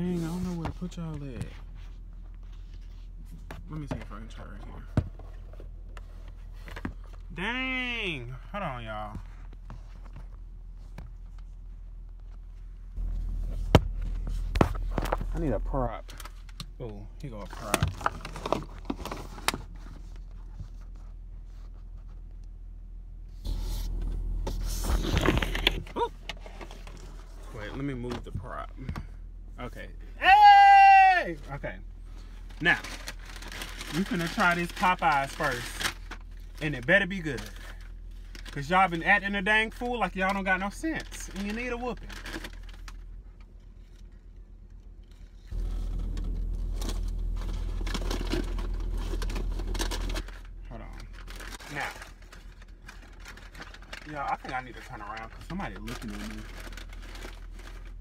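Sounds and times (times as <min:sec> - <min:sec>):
car cabin hum: 0:00.0 - 0:58.0
rubbing on phone microphone: 0:23.4 - 0:25.5
paper wrapper crinkling: 0:32.2 - 0:38.7, 0:45.5 - 0:58.0.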